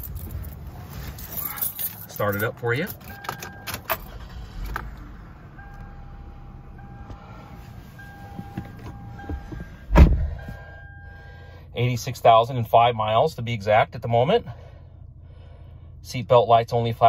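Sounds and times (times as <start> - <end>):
car engine starting and idling: 0.0 - 17.0
two-tone seatbelt reminder beep: 3.1 - 3.8, 5.6 - 6.1, 8.0 - 9.8
loud thud: 9.9 - 10.4.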